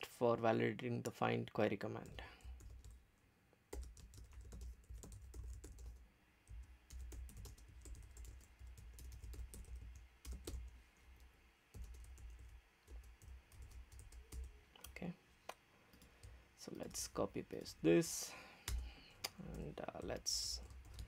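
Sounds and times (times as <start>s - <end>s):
typing on keyboard: 2.4s - 3.0s, 3.7s - 10.7s, 11.7s - 14.6s, 18.6s - 21.0s.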